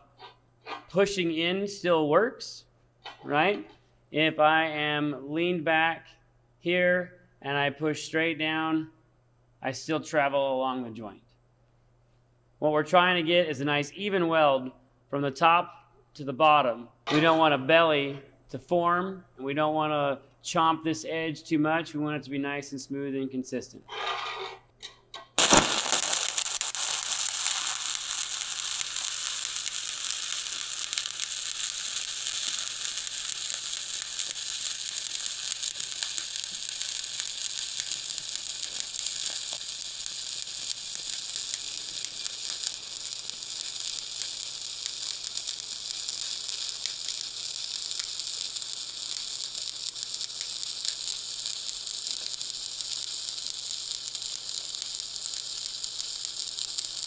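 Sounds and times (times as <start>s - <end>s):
welding arc sizzling crackle: 24.4s - 57.0s
welding arc striking: 25.3s - 57.0s.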